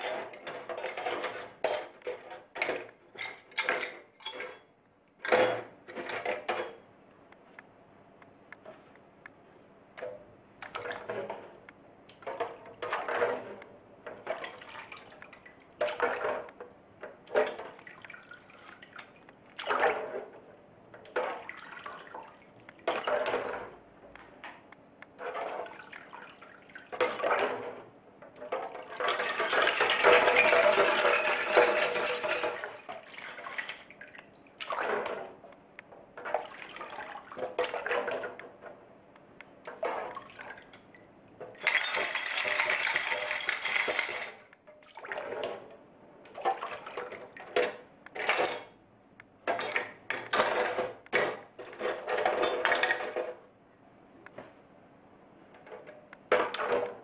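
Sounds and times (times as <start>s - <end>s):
liquid sloshing and splashing: 17.3s - 20.3s, 21.1s - 23.5s, 28.4s - 35.3s, 36.2s - 38.4s, 41.5s - 45.6s, 46.3s - 48.5s.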